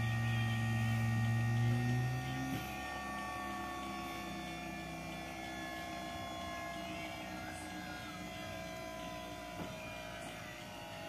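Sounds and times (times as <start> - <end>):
hydraulic pump humming and whining: 0.0 - 11.0.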